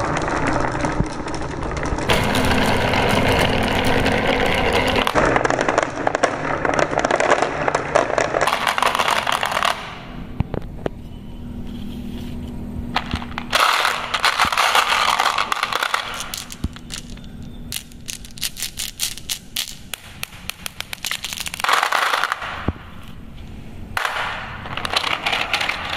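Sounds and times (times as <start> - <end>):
marbles clattering in plastic: 0.0 - 10.3, 12.9 - 22.9, 24.0 - 25.9
marbles clicking together: 13.0 - 22.5.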